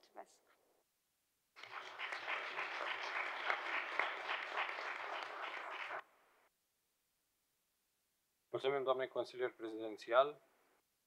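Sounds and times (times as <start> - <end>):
people applauding: 1.6 - 6.0.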